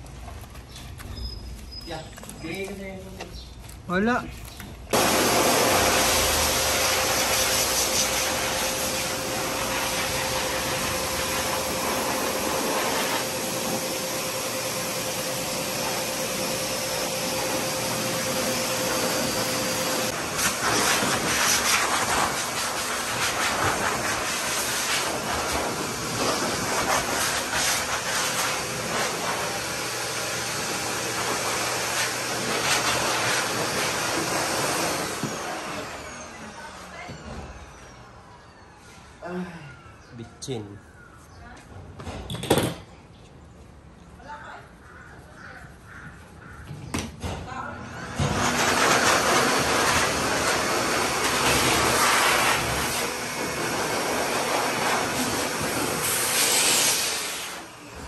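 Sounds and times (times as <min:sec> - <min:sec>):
motor whine: 0:04.9 - 0:21.4, 0:24.4 - 0:39.1, 0:47.8 - 0:58.0
pet dryer blowing air: 0:04.9 - 0:37.5, 0:47.8 - 0:58.0.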